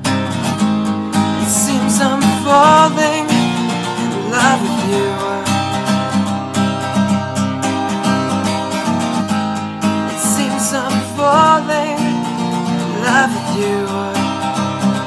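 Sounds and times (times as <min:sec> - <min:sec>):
strummed acoustic guitar: 0:00.0 - 0:15.0
person singing wordlessly: 0:01.4 - 0:06.6, 0:10.0 - 0:14.8.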